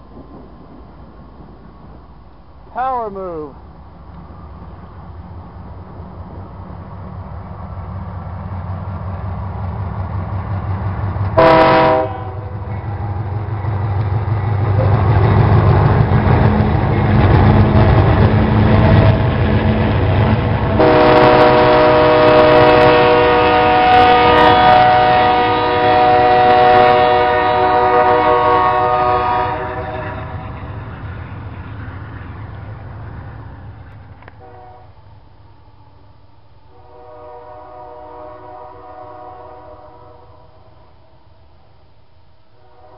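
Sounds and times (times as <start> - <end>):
locomotive engines rumbling: 0.0 - 41.5
locomotive air horn: 11.4 - 12.6, 20.8 - 30.4, 34.4 - 34.9, 36.7 - 40.7, 42.6 - 42.9.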